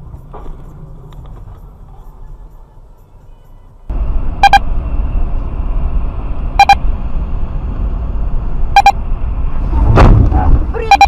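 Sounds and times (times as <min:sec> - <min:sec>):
car driving rumble: 0:00.0 - 0:11.0
electronic double beep: 0:04.4 - 0:04.7, 0:06.6 - 0:06.8, 0:08.8 - 0:09.0, 0:10.8 - 0:11.0.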